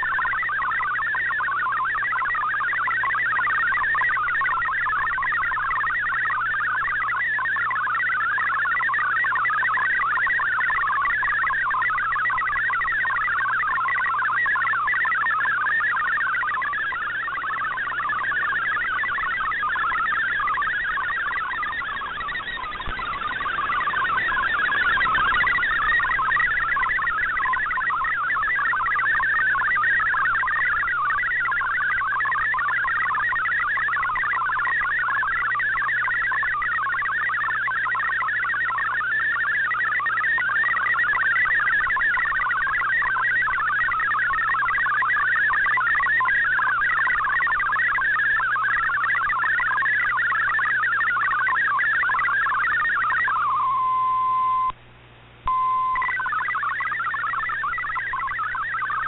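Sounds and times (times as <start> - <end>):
warbling digital radio tones: 0.0 - 54.8, 55.4 - 59.0
faint low hum: 53.4 - 59.0.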